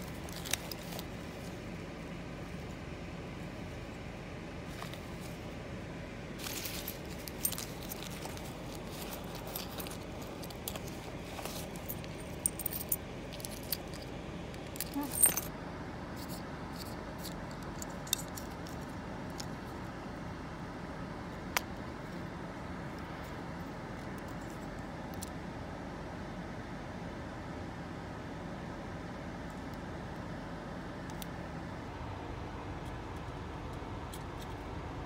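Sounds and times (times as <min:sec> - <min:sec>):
hands rummaging in fabric bag: 0:00.0 - 0:02.7, 0:04.6 - 0:05.6, 0:06.4 - 0:15.5
low background rumble: 0:00.0 - 0:35.0
small hard items clicking: 0:06.4 - 0:15.5.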